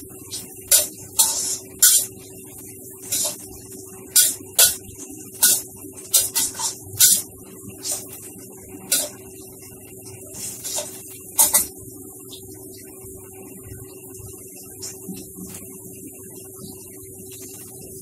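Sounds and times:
metal spatula scraping a wok: 0.7s - 2.1s, 3.1s - 3.4s, 4.2s - 4.8s, 5.4s - 7.2s, 7.8s - 8.1s, 8.9s - 9.2s, 10.4s - 11.7s.

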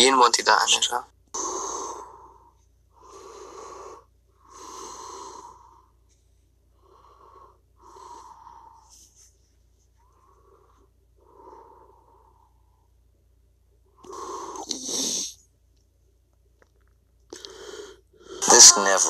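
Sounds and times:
person breathing: 1.4s - 13.1s, 13.9s - 15.4s, 17.3s - 19.0s.

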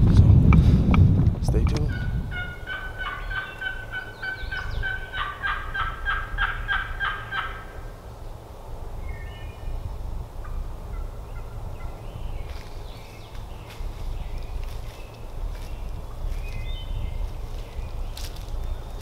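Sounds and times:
turkey yelping: 1.9s - 7.8s.

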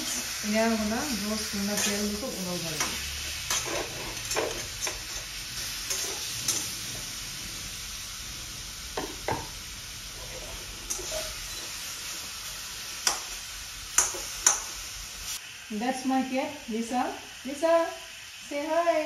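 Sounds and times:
pork fat sizzling in a pan: 0.0s - 19.0s
metal spatula scraping a pan: 1.6s - 7.1s, 10.1s - 12.3s.

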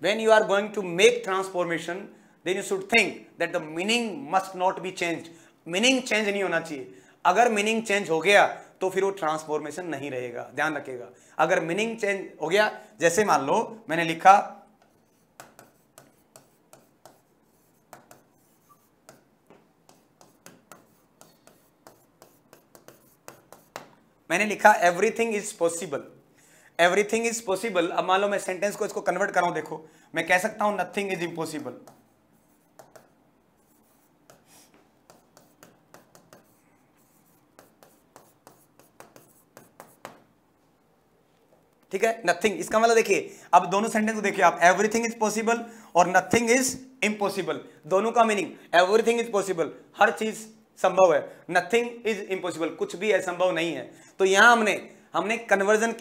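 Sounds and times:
handwriting scratching strokes: 14.8s - 24.0s, 31.8s - 40.3s.

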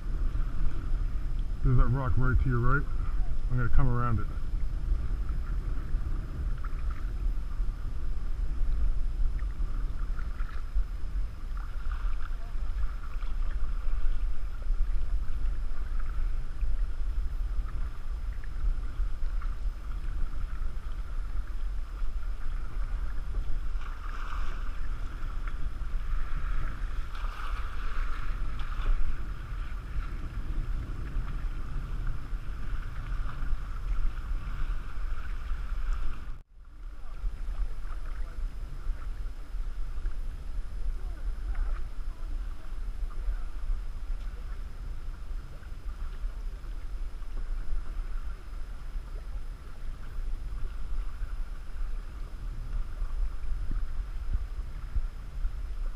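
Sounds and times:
water splashing against canoe: 0.0s - 55.9s
wind buffeting microphone: 0.0s - 55.9s.

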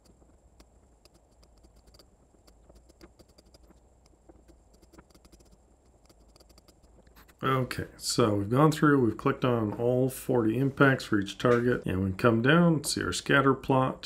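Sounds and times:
computer mouse clicks: 0.0s - 7.1s
faint low hum: 0.0s - 14.0s.

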